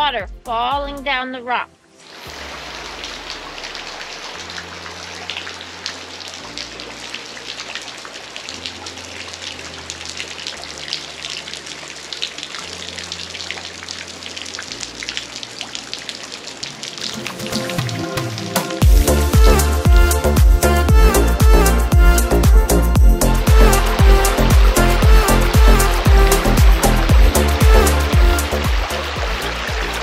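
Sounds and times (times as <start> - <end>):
water trickling and dripping: 1.8 - 30.0
low soft steady notes: 18.8 - 30.0.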